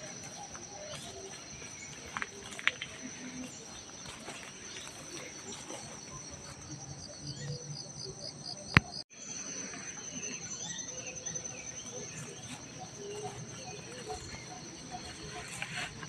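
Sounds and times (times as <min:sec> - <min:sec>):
insect trilling: 0:00.0 - 0:07.6, 0:09.2 - 0:16.0.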